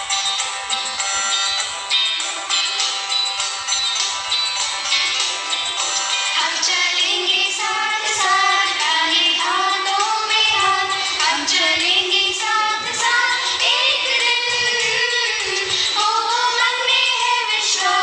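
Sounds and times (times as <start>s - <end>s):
instrumental backing: 0.0s - 18.0s
high voices singing: 4.3s - 18.0s.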